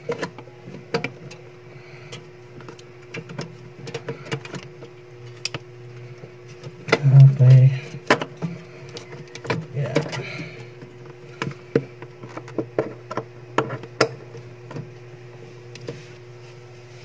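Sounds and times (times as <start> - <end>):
steady low hum: 0.0 - 17.0
clicks and knocks of handled parts: 7.8 - 14.9.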